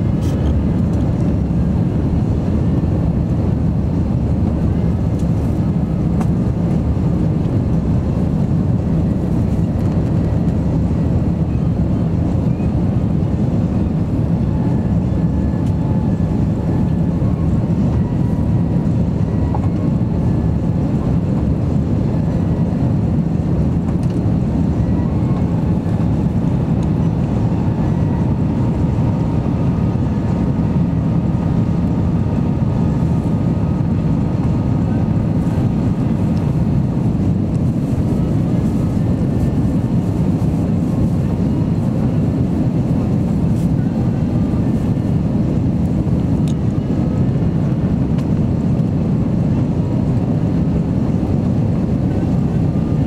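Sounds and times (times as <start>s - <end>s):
jet engine drone: 0.0s - 53.0s.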